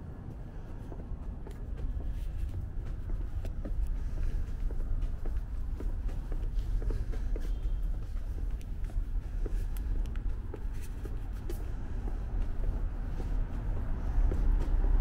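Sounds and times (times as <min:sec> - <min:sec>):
distant traffic rumble: 0:00.0 - 0:15.0
light clicks and taps: 0:04.7 - 0:11.7.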